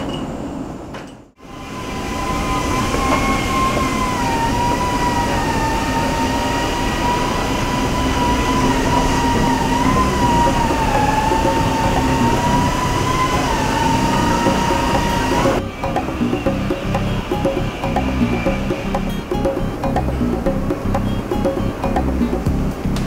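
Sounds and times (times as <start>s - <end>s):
high ventilation whine: 0.0s - 23.0s
ventilation air rushing: 1.3s - 23.0s.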